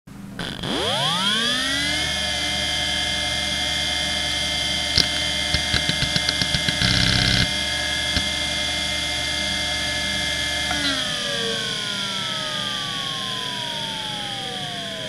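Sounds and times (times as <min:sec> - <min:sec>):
hard drive buzzing burst: 0:00.4 - 0:03.0, 0:03.7 - 0:12.3
hard drive spindle whine: 0:00.4 - 0:15.0
hard drive ticking: 0:04.8 - 0:08.8
hard drive head clicks: 0:05.0 - 0:07.5.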